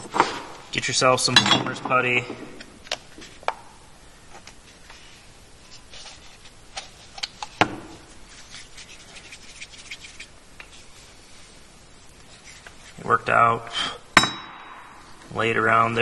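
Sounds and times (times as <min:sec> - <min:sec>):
palms rubbing putty: 0:05.7 - 0:11.1.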